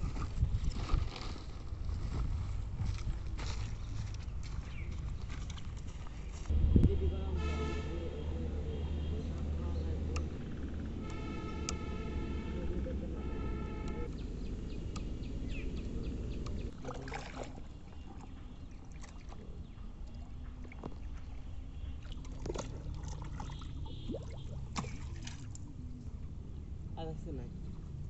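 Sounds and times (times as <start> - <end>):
heavy wind-like rumble: 0.0 - 16.8
water lapping and splashing: 14.9 - 26.0.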